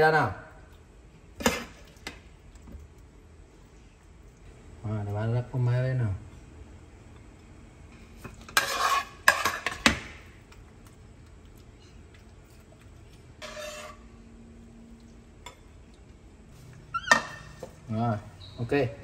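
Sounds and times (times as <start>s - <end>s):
metal spoon scraping bowl and pan: 8.2s - 10.0s, 13.3s - 14.3s, 16.7s - 17.8s.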